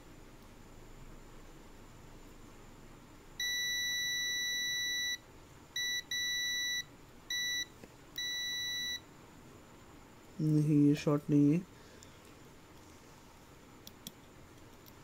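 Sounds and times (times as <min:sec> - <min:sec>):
multimeter beeping: 0:03.4 - 0:05.2, 0:05.8 - 0:09.0.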